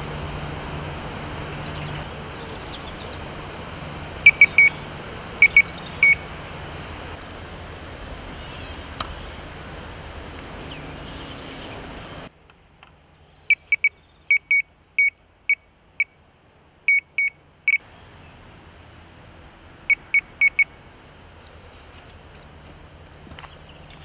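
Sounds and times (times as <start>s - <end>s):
outdoor noise rush: 0.0s - 24.0s
electronic bite alarm beeping: 4.2s - 4.8s, 5.4s - 6.2s, 13.5s - 16.2s, 16.9s - 17.8s, 19.9s - 20.7s.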